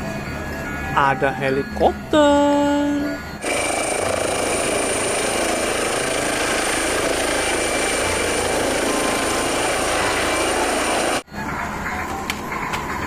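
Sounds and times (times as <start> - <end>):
helicopter rotor and engine: 3.4 - 11.2.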